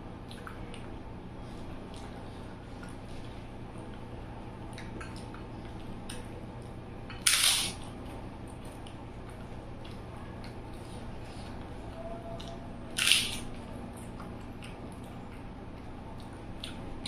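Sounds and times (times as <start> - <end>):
chewing clicks: 12.4 - 16.9.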